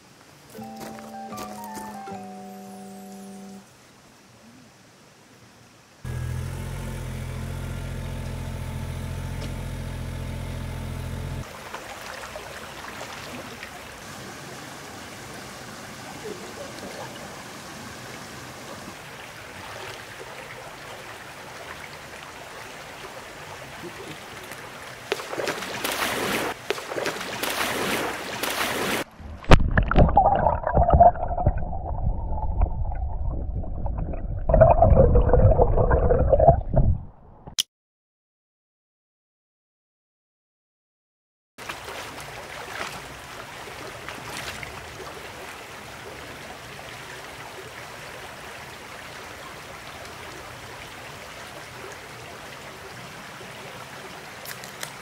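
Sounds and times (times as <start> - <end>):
diesel engine running: 6.1 - 11.4
water gurgling and sloshing: 10.2 - 37.4, 41.6 - 53.1
stream flowing over stones: 11.2 - 35.6, 41.6 - 55.0.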